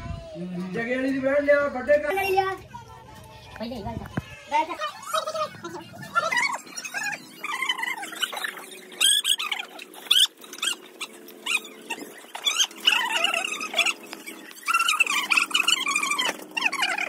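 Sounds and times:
animal cries: 4.2s - 17.0s.

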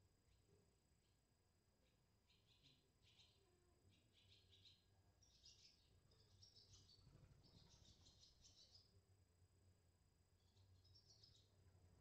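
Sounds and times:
swallows twittering: 2.3s - 8.9s.

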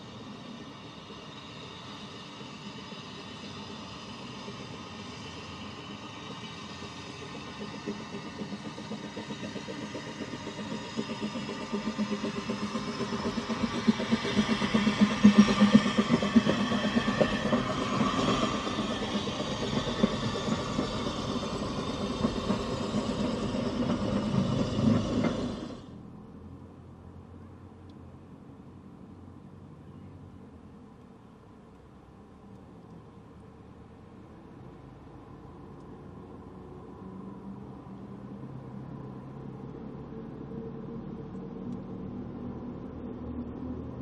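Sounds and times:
carriages rolling on rails: 0.0s - 26.0s
steam locomotive exhaust beats: 0.0s - 26.9s, 30.5s - 44.0s.

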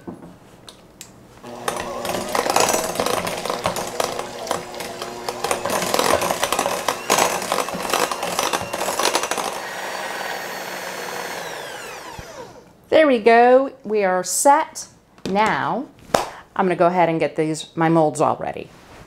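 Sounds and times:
electric hand mixer running: 1.4s - 12.7s.

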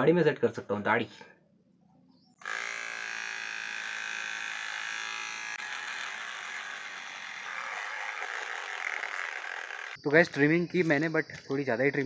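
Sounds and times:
electric beard trimmer buzzing: 2.4s - 10.0s.

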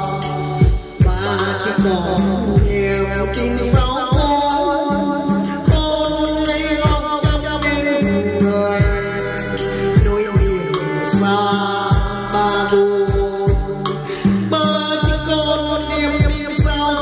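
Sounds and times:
song over loudspeakers: 0.0s - 17.0s.

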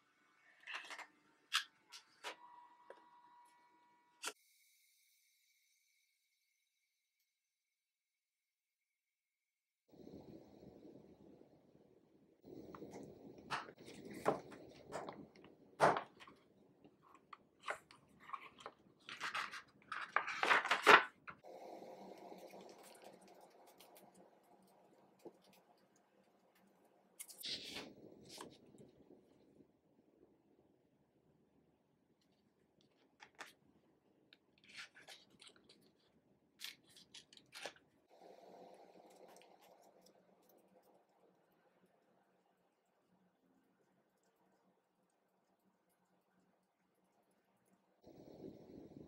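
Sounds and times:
paper pages rustling: 17.6s - 21.3s
pages turning: 17.6s - 21.4s, 34.6s - 36.0s, 36.6s - 37.8s.

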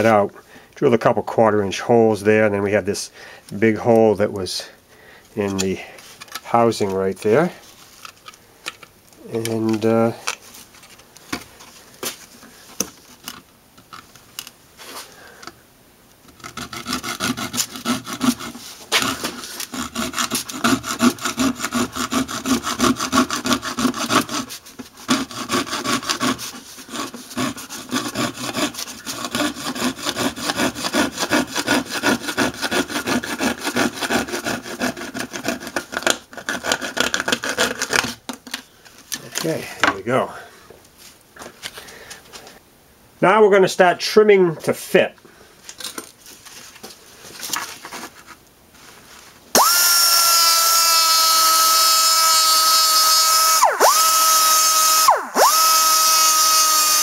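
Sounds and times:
saw cutting plastic: 16.3s - 38.2s, 49.5s - 57.0s.

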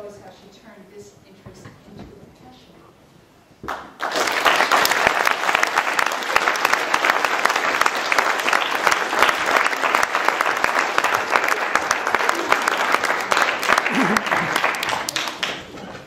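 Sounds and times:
audience applauding: 3.7s - 16.0s.

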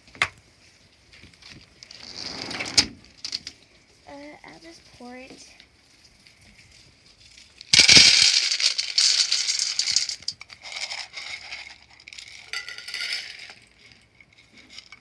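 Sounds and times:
dry cat food rattling into tin: 7.6s - 15.0s.

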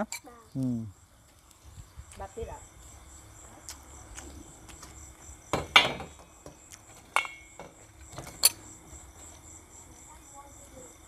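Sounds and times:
crickets chirring: 0.0s - 11.0s
utensils clinking on dishes: 7.0s - 8.6s.

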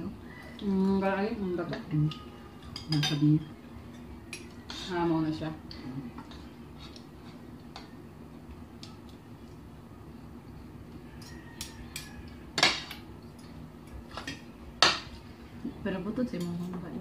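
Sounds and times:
low steady hum: 0.0s - 17.0s
cutlery clinking on plates: 1.7s - 4.9s, 10.9s - 15.2s.

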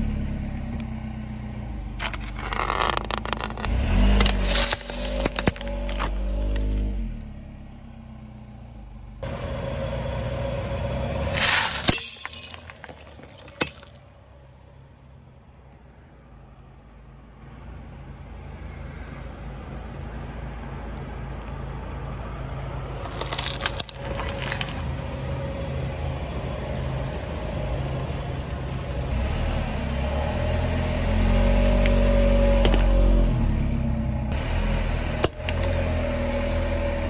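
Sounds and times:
car engine running: 0.0s - 13.9s
sharp crackling crunches: 2.0s - 6.8s, 11.3s - 14.0s, 23.0s - 24.9s.

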